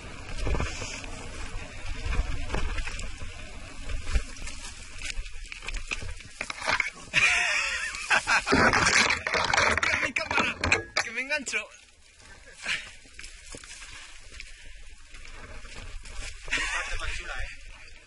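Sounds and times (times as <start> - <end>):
tyres crunching on gravel: 0.0 - 7.2
wind rumbling on microphone: 0.0 - 8.8
branches scraping across camera: 0.0 - 10.2, 11.8 - 18.0
bike rattling: 0.0 - 18.0.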